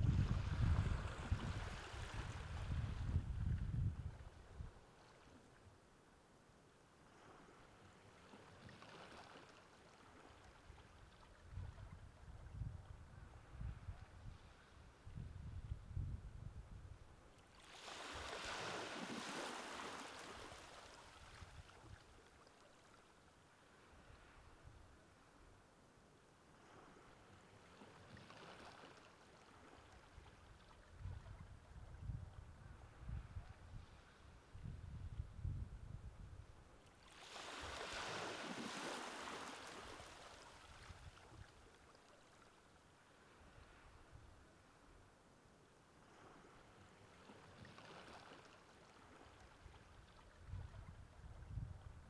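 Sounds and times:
low wind rumble: 0:00.0 - 0:04.8, 0:15.0 - 0:17.1, 0:30.9 - 0:36.7.

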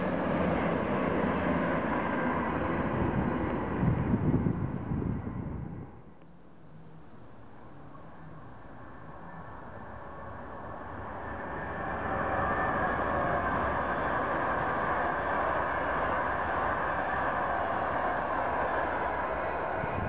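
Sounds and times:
train passing at high speed: 0:00.0 - 0:06.1, 0:09.0 - 0:20.0
wheels on rail: 0:08.8 - 0:20.0.

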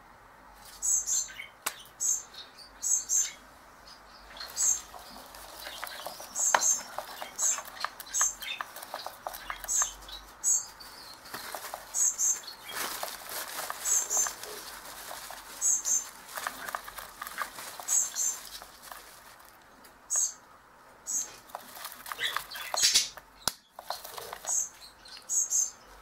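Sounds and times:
bird chicks chirping: 0:00.8 - 0:26.0
handling rustle: 0:04.3 - 0:20.4, 0:21.1 - 0:24.9.

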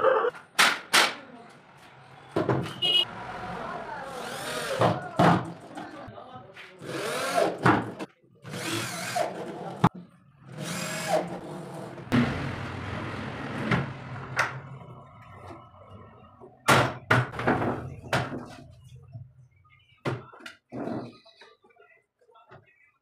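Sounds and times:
electric drill boring into wood: 0:04.1 - 0:04.8, 0:06.8 - 0:07.6, 0:08.5 - 0:09.3, 0:10.6 - 0:11.3.

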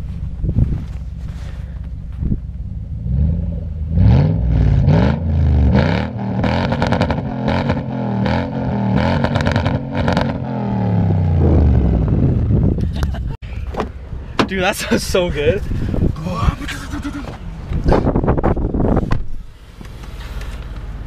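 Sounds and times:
engine revving: 0:02.9 - 0:12.7.

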